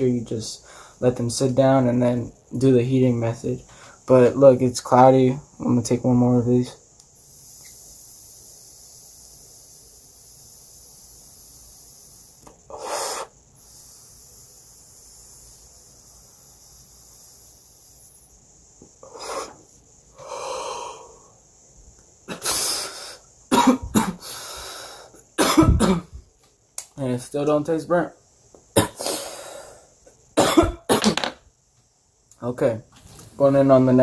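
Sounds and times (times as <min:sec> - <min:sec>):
hissing draw on vape pen: 0:07.0 - 0:20.4
person exhaling: 0:12.7 - 0:14.1, 0:19.0 - 0:21.4
person coughing: 0:23.5 - 0:24.2, 0:25.4 - 0:26.1, 0:28.8 - 0:29.2, 0:30.4 - 0:31.2.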